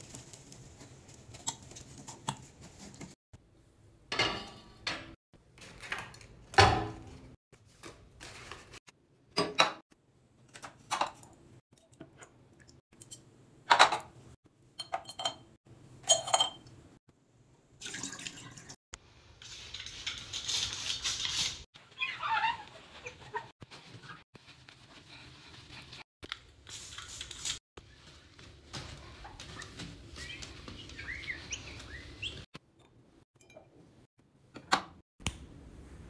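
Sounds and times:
glass clinking on marble counter: 16.1s - 16.7s.

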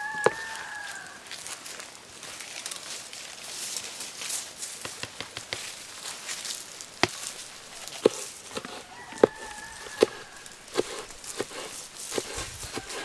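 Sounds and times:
hen calling: 0.0s - 1.2s, 6.8s - 13.0s
cleaver chopping on wooden board: 7.0s - 13.0s.

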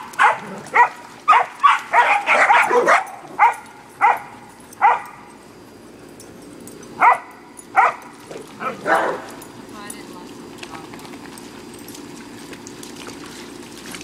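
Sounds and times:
dog barking sharp high barks: 0.0s - 5.2s, 7.0s - 8.0s.

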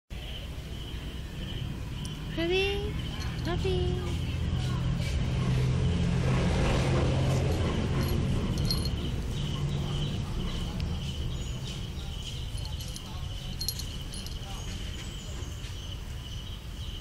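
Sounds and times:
insects chirping: 0.1s - 17.0s.

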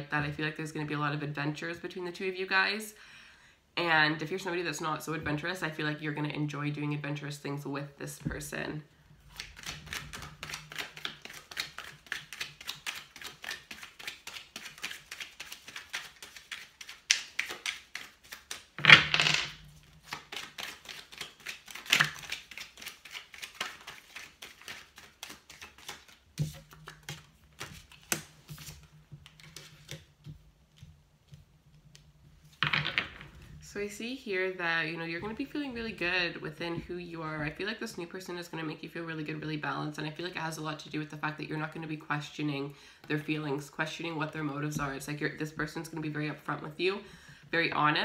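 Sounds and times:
cards being shuffled: 9.3s - 33.3s.

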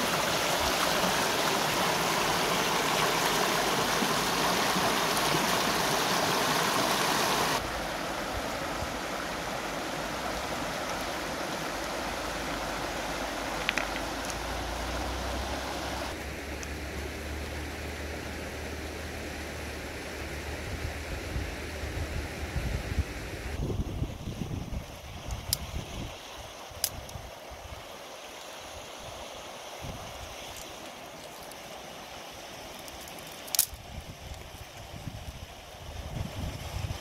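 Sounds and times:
water rushing over rocks: 0.0s - 16.8s.

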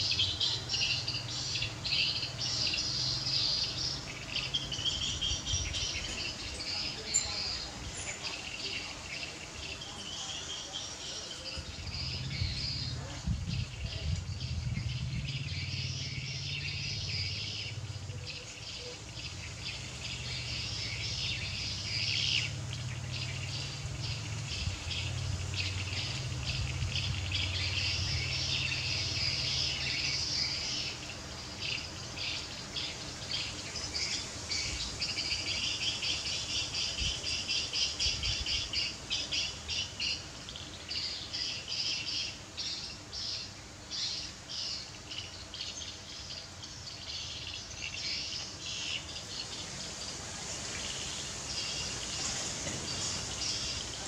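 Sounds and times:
birds chirping: 0.0s - 54.0s
insects chirping: 0.0s - 54.0s.

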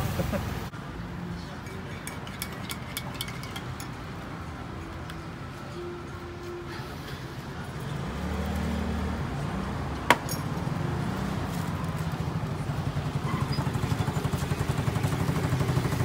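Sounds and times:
vehicle engine running: 11.2s - 16.0s.

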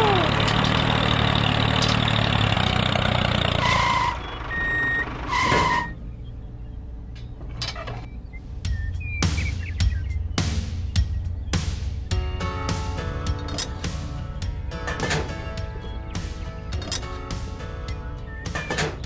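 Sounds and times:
engine running: 0.0s - 19.0s
reversing alarm beeps: 4.5s - 5.1s.

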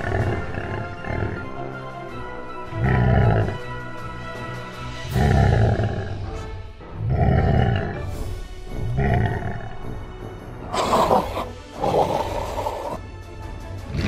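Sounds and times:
dinosaur roars: 0.0s - 1.8s, 2.7s - 3.7s, 5.1s - 8.2s, 8.8s - 9.9s, 10.7s - 13.0s
background music: 0.0s - 14.0s.

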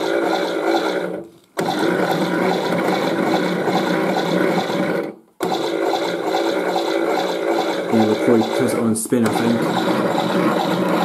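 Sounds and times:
toy washing machine sound effect: 0.0s - 11.0s.

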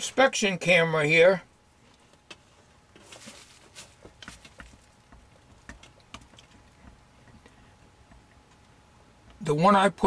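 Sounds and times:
handling clicks and rustles: 1.8s - 9.4s.

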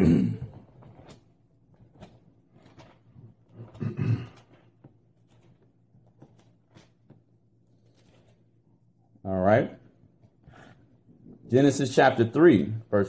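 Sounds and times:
book pages rustling: 0.5s - 8.8s.

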